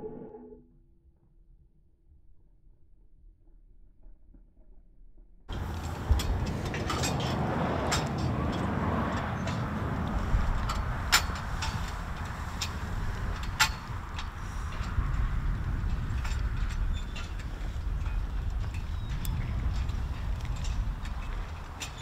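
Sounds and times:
outdoor background rumble: 0:05.5 - 0:22.0.

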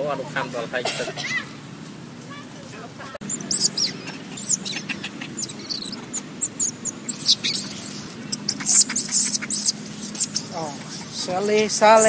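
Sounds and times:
baby monkey shrill squeals: 0:03.3 - 0:12.0.

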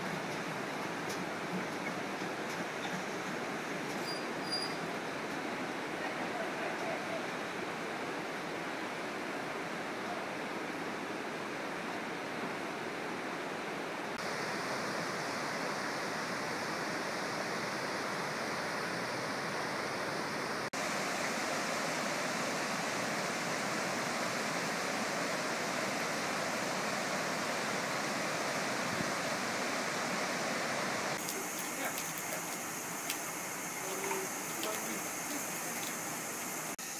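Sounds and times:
river water rushing over rocks: 0:14.2 - 0:36.9.

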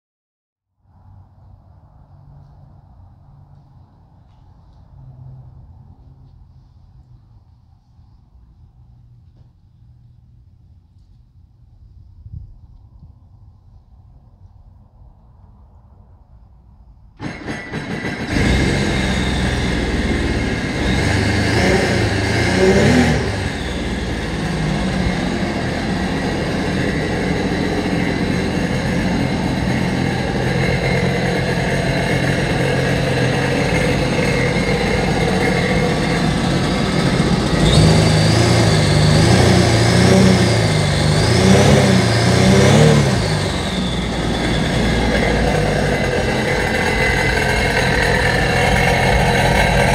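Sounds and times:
jet ski engine revving: 0:17.2 - 0:49.9.

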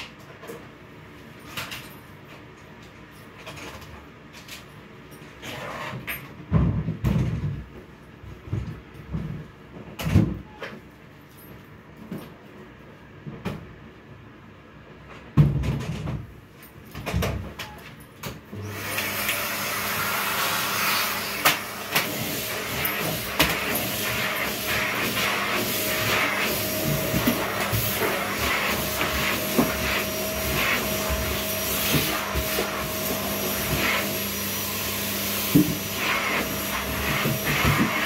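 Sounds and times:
vacuum cleaner motor running: 0:18.5 - 0:38.0.

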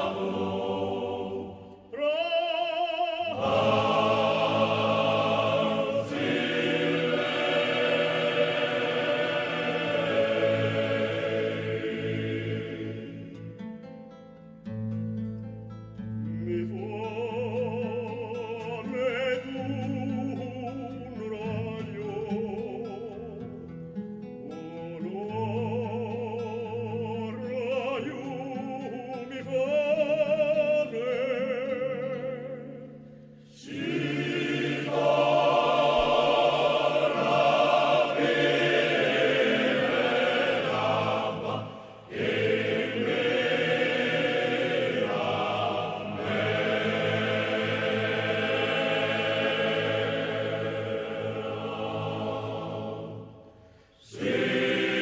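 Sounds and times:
group of voices singing: 0:00.0 - 0:13.5, 0:33.5 - 0:55.0.

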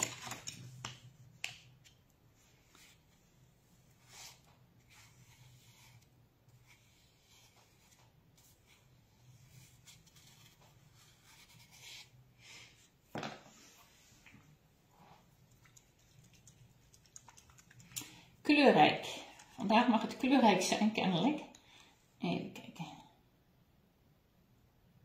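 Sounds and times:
paintbrush rustling on paper: 0:02.3 - 0:14.3, 0:14.9 - 0:18.0.

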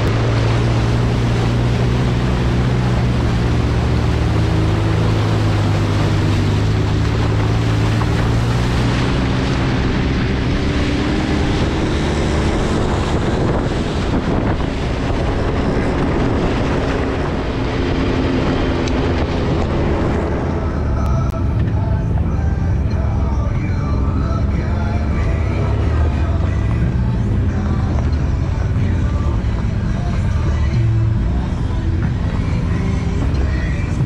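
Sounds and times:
wind buffeting microphone: 0:00.0 - 0:21.9
off-road vehicle engine running: 0:00.0 - 0:34.0
terrain noise: 0:00.0 - 0:34.0.

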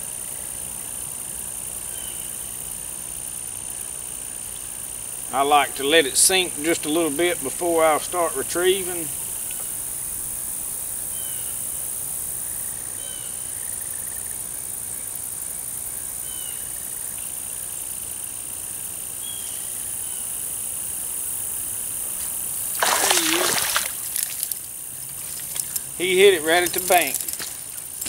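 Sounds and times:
high-pitched insect buzz: 0:08.6 - 0:28.0
fish splashing: 0:22.2 - 0:28.0.

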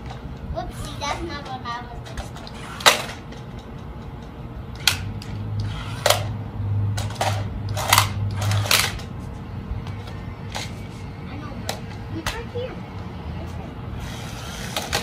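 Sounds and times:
low motor hum: 0:00.0 - 0:15.0
plastic toy car clacking on concrete: 0:01.4 - 0:09.1, 0:14.6 - 0:15.0.

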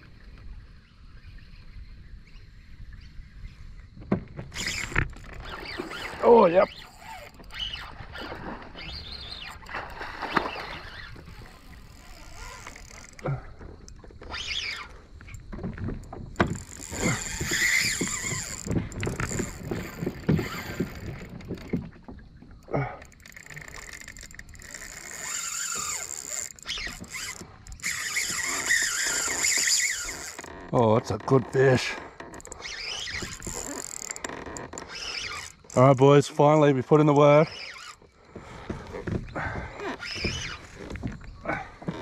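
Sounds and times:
fishing reel winding: 0:04.5 - 0:08.2, 0:10.8 - 0:13.2, 0:16.4 - 0:21.6, 0:23.0 - 0:30.7, 0:31.6 - 0:36.3, 0:37.4 - 0:38.0
water splashing: 0:04.5 - 0:38.6.

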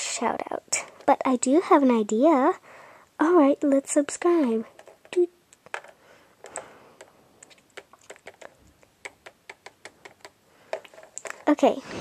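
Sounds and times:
fingers tapping toy keyboard: 0:04.7 - 0:07.1, 0:07.7 - 0:11.0.

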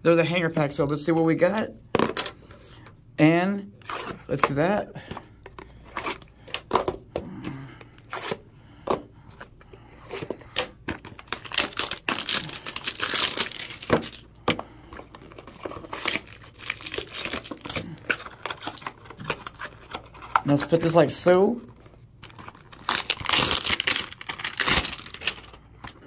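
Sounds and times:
plastic wrapping crinkling: 0:10.9 - 0:14.3, 0:15.0 - 0:26.0.

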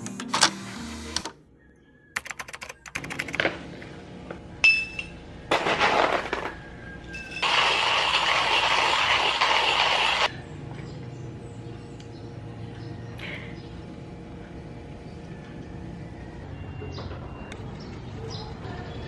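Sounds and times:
sharp ringing clink: 0:04.6 - 0:05.2.

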